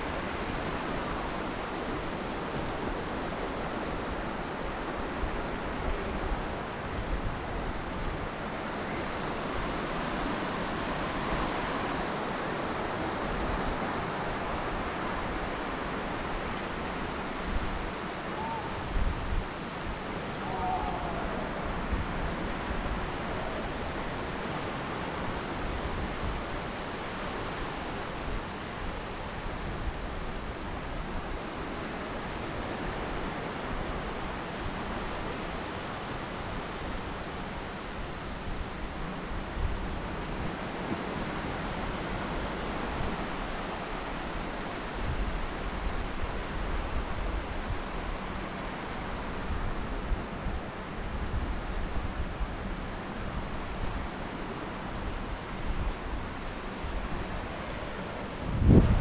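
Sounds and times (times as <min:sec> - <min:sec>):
distant surf: 0:00.0 - 0:59.0
wind buffeting microphone: 0:37.9 - 0:59.0.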